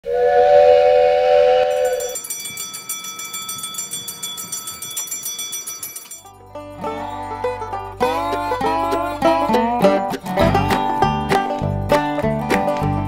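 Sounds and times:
train whistle chord: 0:00.0 - 0:02.2
railroad crossing bell ringing: 0:01.7 - 0:09.3
banjo music: 0:06.2 - 0:13.0.

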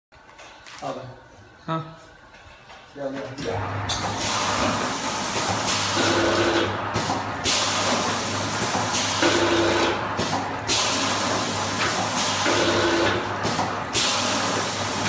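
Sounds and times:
packing machine hum: 0:03.4 - 0:15.0.

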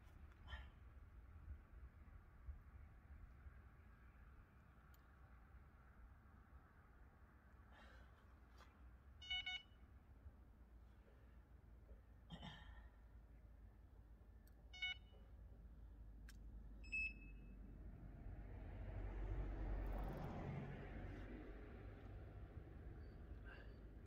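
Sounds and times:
bite alarm beeps: 0:09.2 - 0:09.8, 0:14.8 - 0:15.1, 0:16.8 - 0:17.6.

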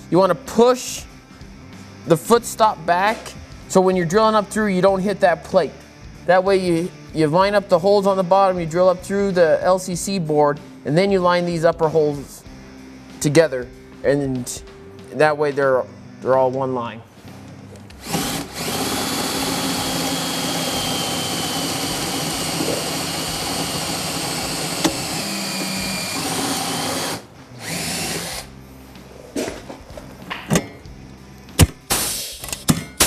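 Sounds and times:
power drill whining: 0:18.0 - 0:28.5.

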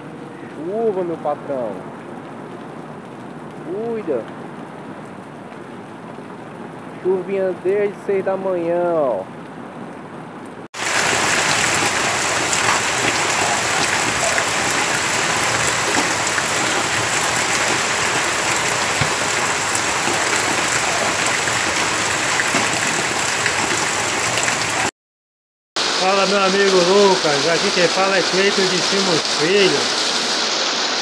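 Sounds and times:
rain falling: 0:00.0 - 0:24.9, 0:25.8 - 0:31.0
runoff pouring off roof: 0:10.8 - 0:24.9, 0:25.8 - 0:31.0.

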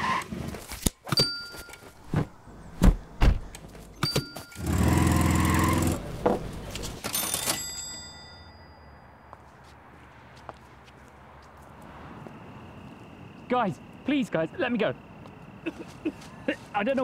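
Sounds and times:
heavy low thuds: 0:02.1 - 0:03.6.

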